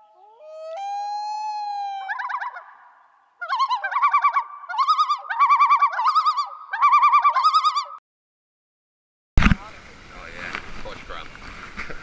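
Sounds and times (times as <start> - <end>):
whistle-like warbling tone: 0.4 - 2.8.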